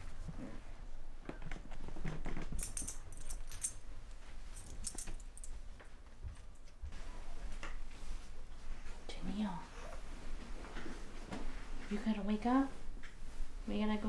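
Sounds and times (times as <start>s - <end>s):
small metal objects jingling: 2.6s - 3.8s.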